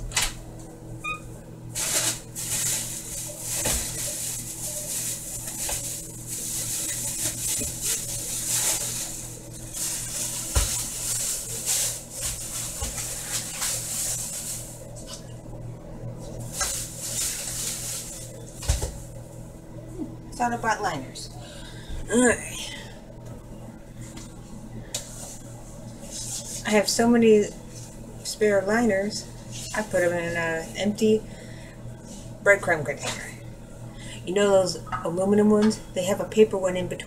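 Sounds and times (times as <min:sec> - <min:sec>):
low steady hum: 0:00.0 - 0:37.0
packaging rustling and crinkling: 0:01.8 - 0:15.2, 0:16.5 - 0:19.1.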